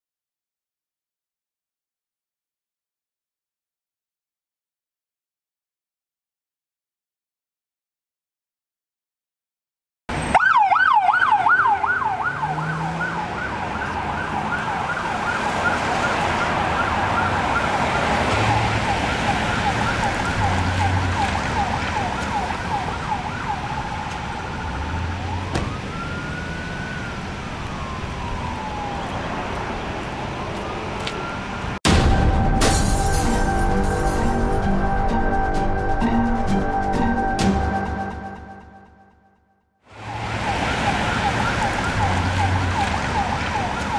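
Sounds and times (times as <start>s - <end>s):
police siren yelping: 10.2s - 31.8s, 39.9s - 43.9s.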